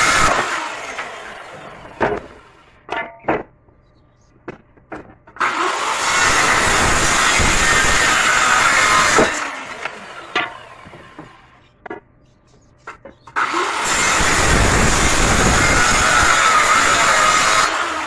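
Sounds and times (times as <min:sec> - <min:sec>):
circular saw cutting wood: 0:00.0 - 0:02.7, 0:05.4 - 0:11.6, 0:13.3 - 0:18.0
wooden knocks: 0:02.0 - 0:03.6, 0:04.4 - 0:05.4, 0:10.3 - 0:13.4.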